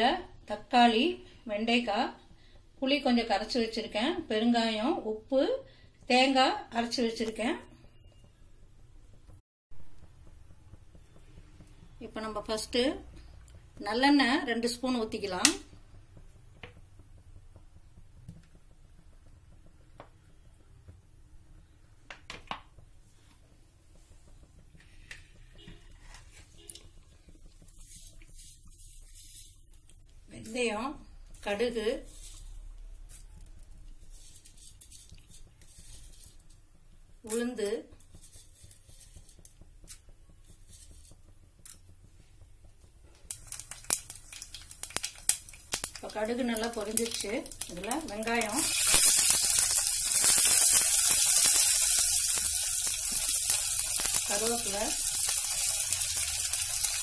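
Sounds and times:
mustard seeds popping in hot oil: 0.0s - 57.0s.

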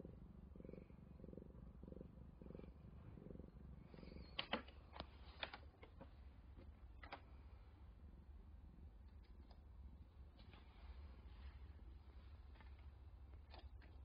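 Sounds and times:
cat purring: 0.0s - 14.0s
sharp clicks and taps: 4.3s - 7.2s.

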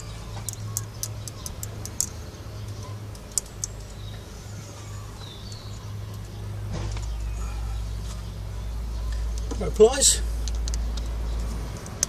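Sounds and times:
small metal parts clicking: 0.0s - 3.9s.

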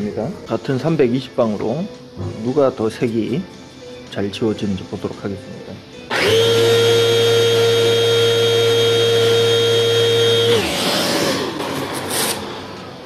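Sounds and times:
electric sander whining: 6.1s - 11.6s
sander winding down: 6.1s - 12.0s.

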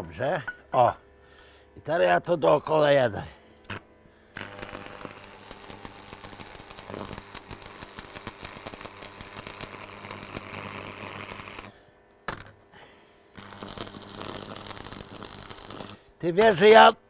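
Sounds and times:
welding arc crackling: 3.6s - 11.8s, 13.4s - 16.9s.

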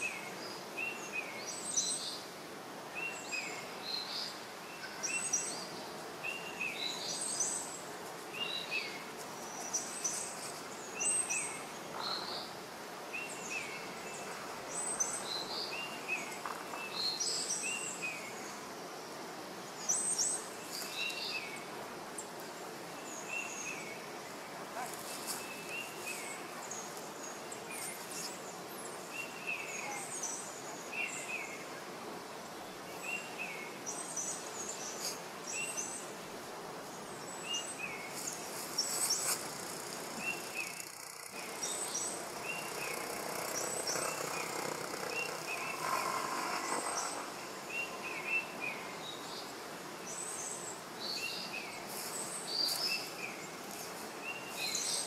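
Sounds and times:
steady outdoor hiss: 0.0s - 55.0s
bird chirping: 37.2s - 49.5s.

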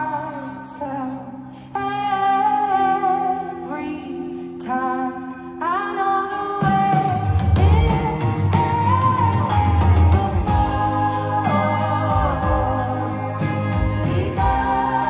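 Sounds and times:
guitar: 0.0s - 15.0s
woman singing: 0.0s - 15.0s
bass and drums: 6.6s - 15.0s.

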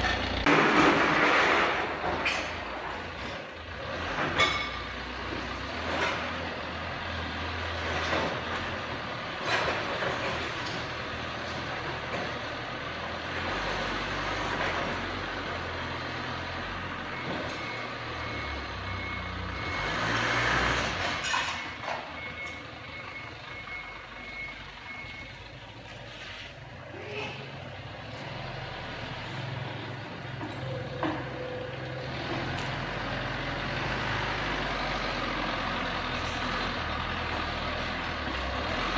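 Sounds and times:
forklift engine running: 0.0s - 26.9s, 27.5s - 38.9s
reversing alarm beeps: 17.1s - 20.0s, 21.6s - 25.4s.

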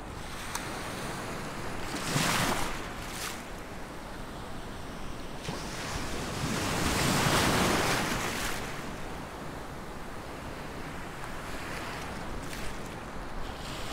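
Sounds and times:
sea waves breaking: 0.2s - 3.6s, 5.4s - 9.0s.

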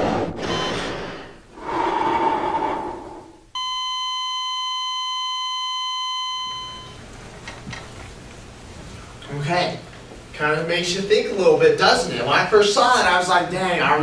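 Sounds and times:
electronic flatline tone: 3.6s - 7.0s.

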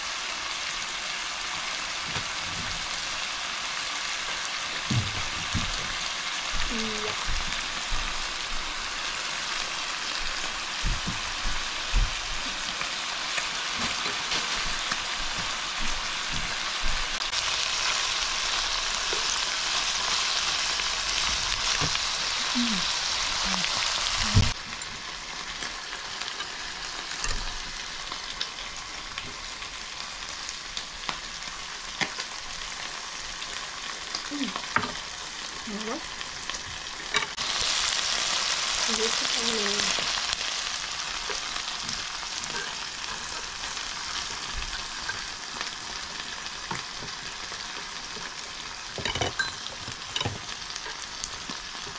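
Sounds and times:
chicken sizzling in grill pan: 0.0s - 51.9s.

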